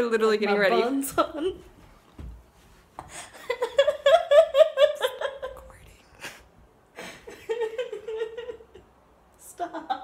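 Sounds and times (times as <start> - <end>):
woman laughing hard: 3.2 - 5.6, 7.0 - 8.9.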